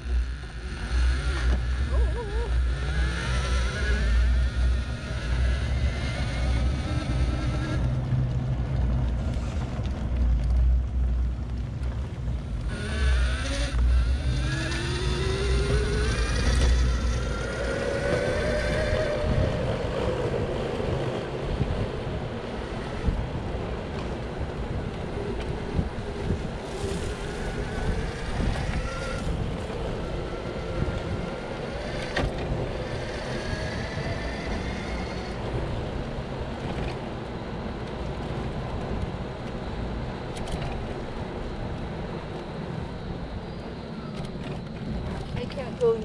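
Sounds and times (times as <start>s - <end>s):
electric wheelchair motor whining: 0.0s - 7.9s, 12.6s - 37.0s
wind buffeting microphone: 0.0s - 46.0s.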